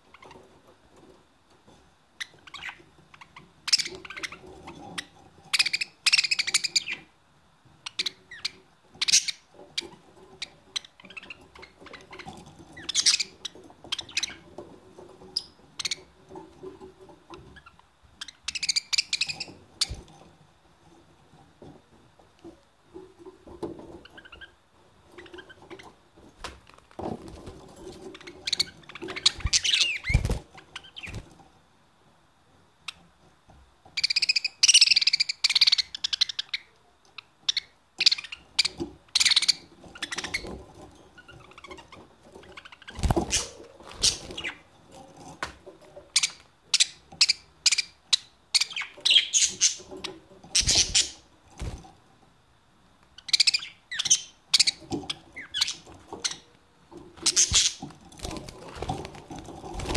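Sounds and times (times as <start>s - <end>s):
budgerigars chirping: 2.2s - 7.1s, 7.9s - 14.4s, 15.4s - 16.1s, 17.4s - 20.0s, 28.2s - 31.2s, 34.0s - 36.7s, 37.4s - 40.6s, 46.2s - 51.2s, 53.2s - 56.4s, 57.2s - 57.8s.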